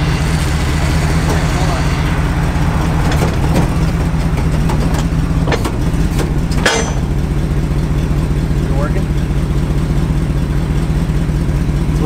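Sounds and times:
truck engine idling: 0.0 - 12.0
metal clank: 1.0 - 8.6.

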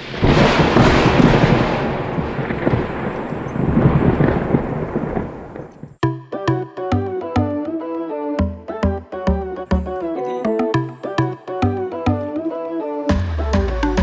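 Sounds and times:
wind buffeting microphone: 0.0 - 6.0.

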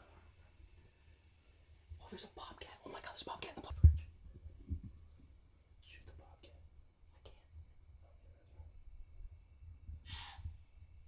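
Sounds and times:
crickets chirping: 0.0 - 11.0
breathy hiss: 10.0 - 10.8.

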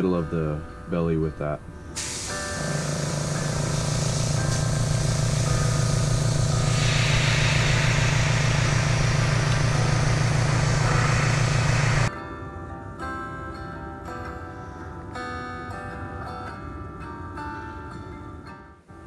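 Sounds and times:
air compressor humming: 2.0 - 12.1
airbrush spraying hiss: 2.0 - 12.1.

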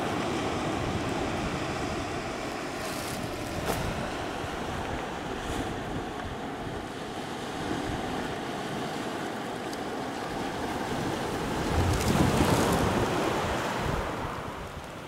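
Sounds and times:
wind on microphone: 0.0 - 8.4, 10.4 - 15.0
waves breaking on pebbly shore: 0.0 - 15.0.

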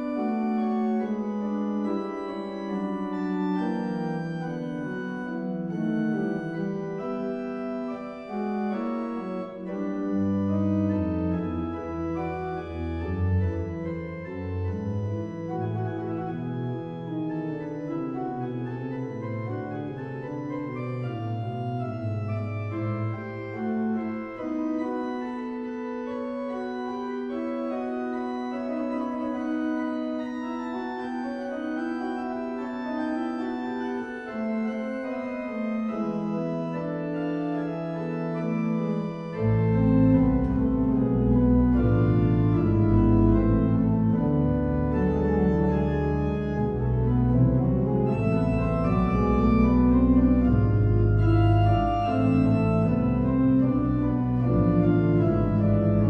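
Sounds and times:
organ chords: 0.0 - 56.0
deep organ bass notes: 39.7 - 56.0.

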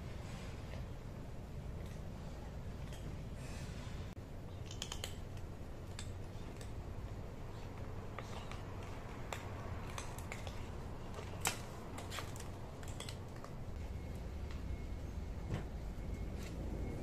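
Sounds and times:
steady low hum: 0.0 - 17.0
cat crunching kibble: 4.6 - 13.8.

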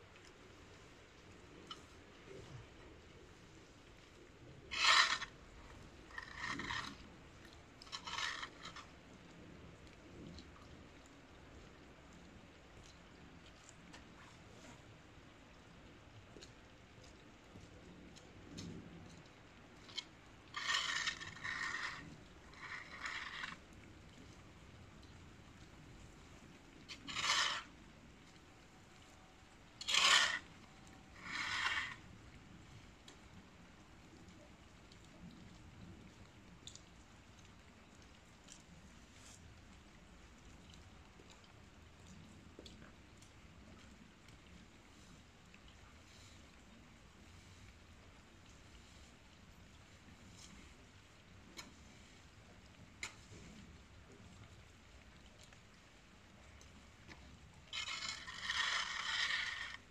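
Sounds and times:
fork scraping through wet straw: 26.9 - 27.7, 29.8 - 30.4, 57.7 - 59.8.

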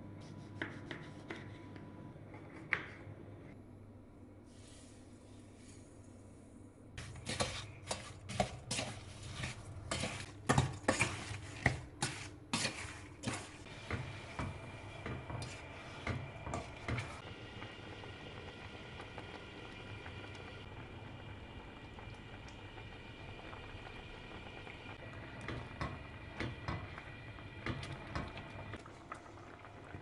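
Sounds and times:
syrup bubbling at the boil: 10.4 - 30.0.

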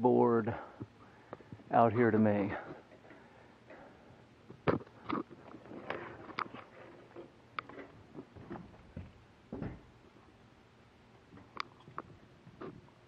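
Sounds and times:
dull thump: 8.4 - 9.9.

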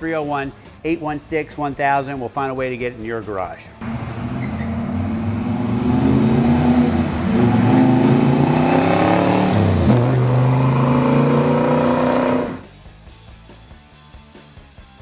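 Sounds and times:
car engine accelerating: 3.8 - 12.6.

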